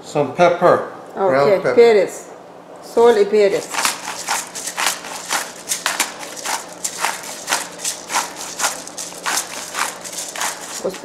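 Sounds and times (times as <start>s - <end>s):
pepper grinder crunching: 3.1s - 11.0s.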